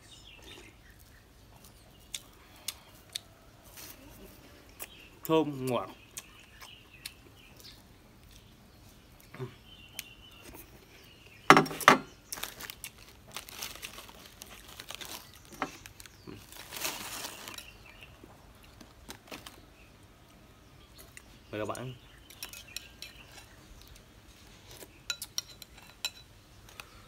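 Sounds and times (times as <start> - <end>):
plastic wrapper crinkling: 12.3 - 17.8, 18.7 - 19.6.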